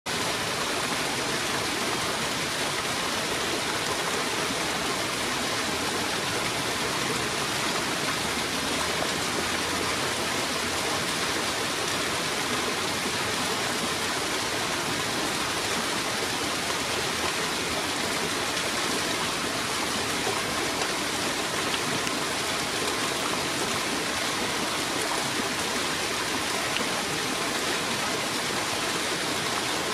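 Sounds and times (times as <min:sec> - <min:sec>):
rain falling on a pond: 0:00.1 - 0:29.9.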